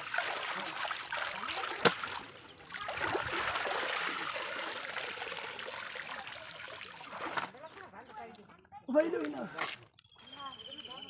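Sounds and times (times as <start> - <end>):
water pouring through basket: 0.0 - 7.7.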